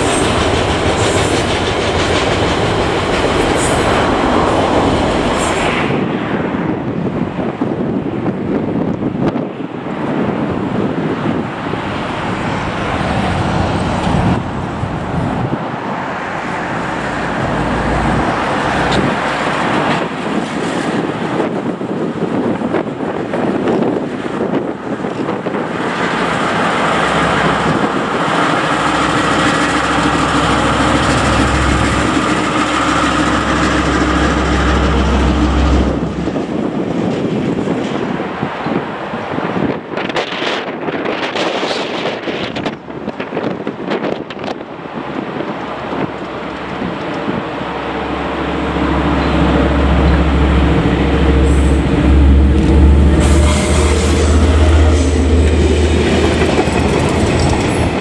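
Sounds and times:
diesel locomotive engine drone: 0.0 - 58.0
deep rumble: 48.1 - 58.0.

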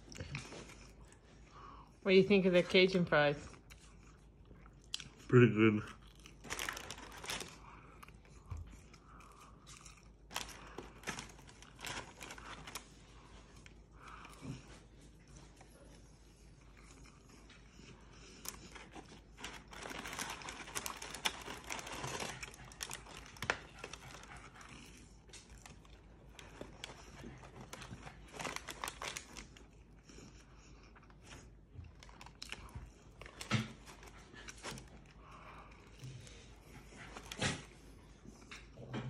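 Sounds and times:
paper crinkling and rustling: 6.4 - 7.6, 10.3 - 13.4, 18.6 - 24.4, 25.4 - 29.6, 32.0 - 35.1.

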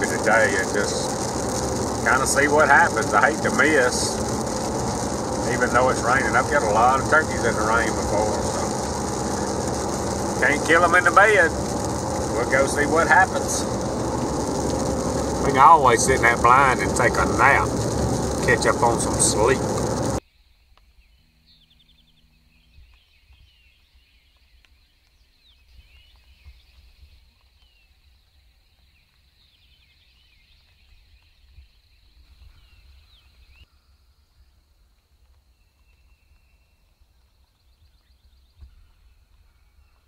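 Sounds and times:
steady high tone: 0.0 - 20.2
wind rumble on microphone: 0.0 - 20.2
songbirds chirping: 0.0 - 33.9.

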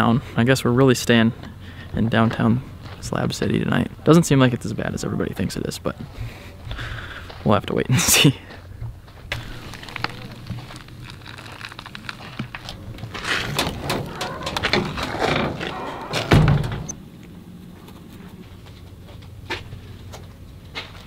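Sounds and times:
door knob and latch rattling: 13.2 - 16.9
door heavy thunk: 13.6 - 16.9.

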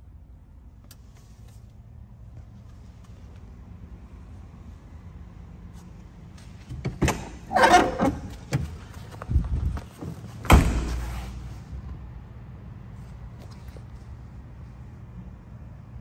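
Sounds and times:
rattling creak: 7.0 - 8.6
car door thud: 10.4 - 11.3.

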